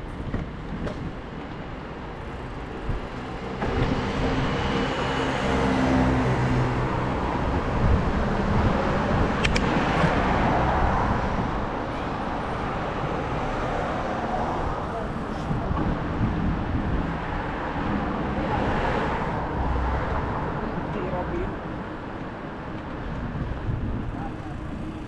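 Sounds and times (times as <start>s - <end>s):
vehicle passing by: 3.3s - 11.5s
sharp click: 9.4s - 9.7s.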